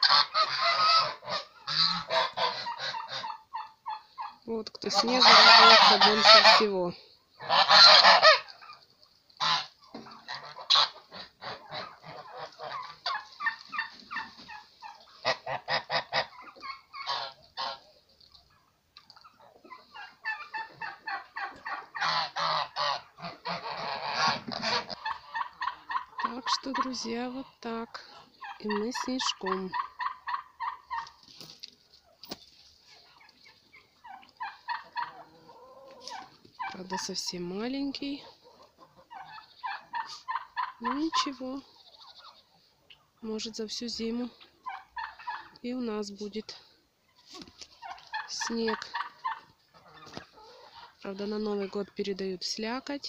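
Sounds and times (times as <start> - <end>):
turkeys gobbling: 0.0 - 6.7, 7.3 - 37.4, 38.0 - 43.2, 44.3 - 45.6, 47.0 - 52.0
poultry calls: 0.0 - 6.8, 7.4 - 43.2, 44.1 - 45.6, 47.0 - 52.0
geese honking: 0.0 - 18.0, 19.2 - 27.4, 32.9 - 43.1.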